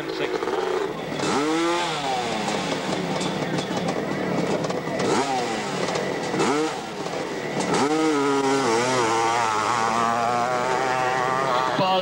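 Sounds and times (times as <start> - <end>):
dirt bike engine revving: 0.0 - 12.0.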